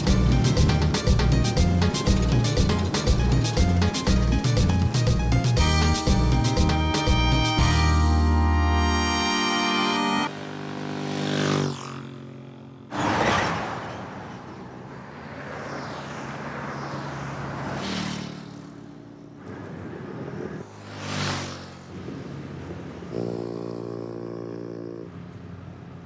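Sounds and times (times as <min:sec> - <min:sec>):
engine hum: 0:00.0 - 0:26.0
cars passing whoosh: 0:12.9 - 0:23.8.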